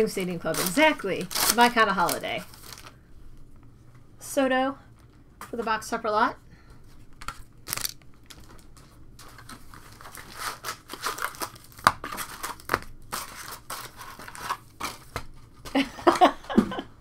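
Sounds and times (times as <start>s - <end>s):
foil wrappers crinkling and tearing: 0.0s - 3.0s, 7.1s - 15.6s.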